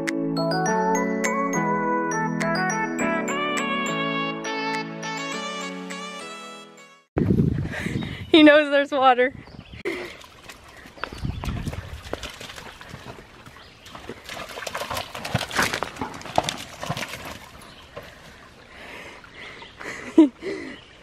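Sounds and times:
dog splashing in water: 10.0s - 18.3s
paws knocking on wet stones: 10.0s - 18.3s.

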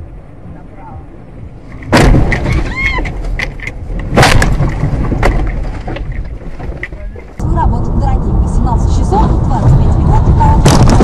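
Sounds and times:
heavy car impact: 1.8s - 7.1s
crunching and rattling knocks: 1.8s - 7.4s, 9.7s - 11.0s
tire squeal: 2.4s - 3.3s.

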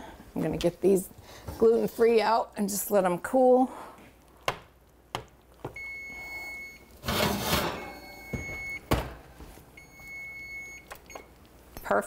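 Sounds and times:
oven timer beeping: 5.8s - 9.0s, 9.8s - 12.0s
baking dish and rack clatter: 7.0s - 9.2s
oven door shutting: 7.0s - 9.2s.

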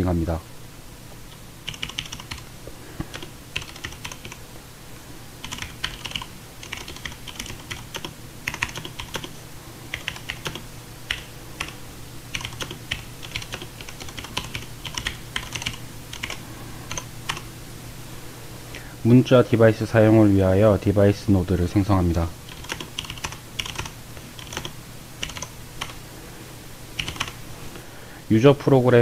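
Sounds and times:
low steady hum: 0.0s - 29.0s
keyboard keys clicking: 1.7s - 2.4s, 3.0s - 4.4s, 5.4s - 17.4s, 22.5s - 26.0s, 27.0s - 27.4s.

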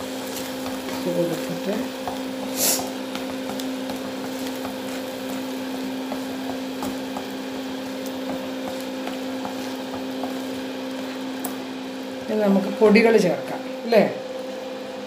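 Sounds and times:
paste sizzling in a pan: 0.0s - 13.7s
spatula scraping a pan: 2.0s - 11.3s.

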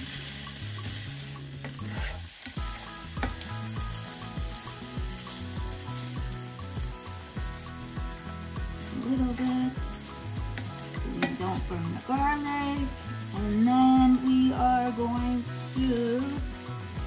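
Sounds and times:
spatula scraping a pan: 0.0s - 3.5s
food sizzling in a skillet: 0.0s - 17.0s.

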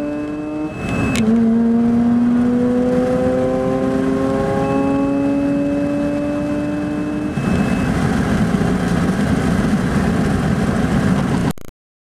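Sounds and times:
rotary engine at high revs: 0.0s - 8.8s.

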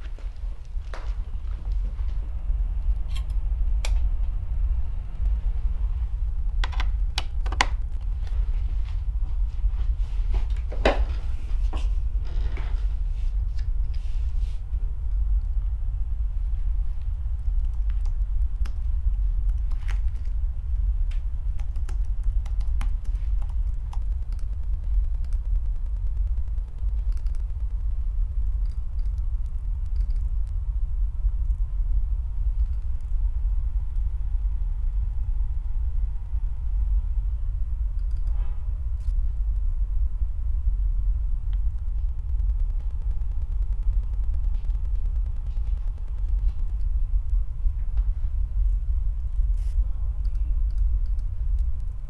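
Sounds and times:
low rumbling drone: 0.0s - 52.0s
keyboard and mouse clicks: 6.5s - 8.1s, 21.5s - 27.9s, 28.6s - 30.3s, 38.0s - 38.4s.

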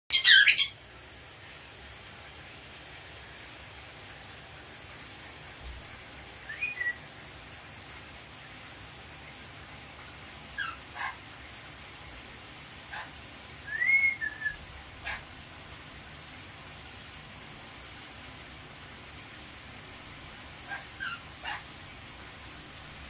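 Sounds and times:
parrot whistled chirps: 0.1s - 0.8s, 6.4s - 7.0s, 13.6s - 15.2s
running shower hiss: 0.2s - 23.0s.

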